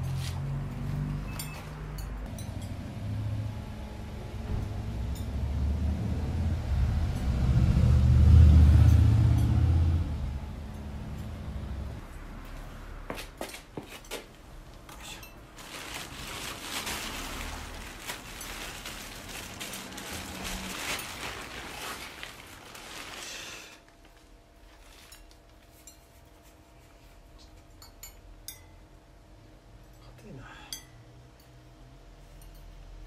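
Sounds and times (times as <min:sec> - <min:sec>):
plastic bag rustling: 0:15.1 - 0:27.1.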